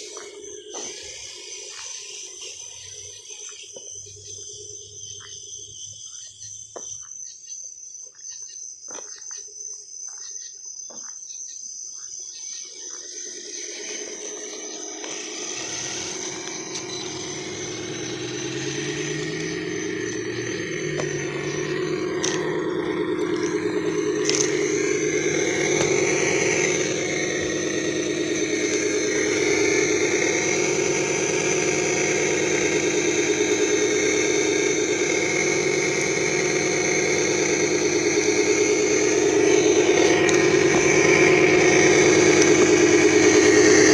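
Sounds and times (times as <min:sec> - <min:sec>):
electric motor whining: 0:00.0 - 0:05.1, 0:12.7 - 0:43.9.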